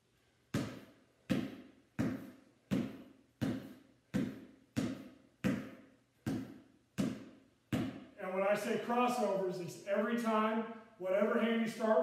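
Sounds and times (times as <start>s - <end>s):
basketball bouncing on concrete: 0.5s - 8.2s.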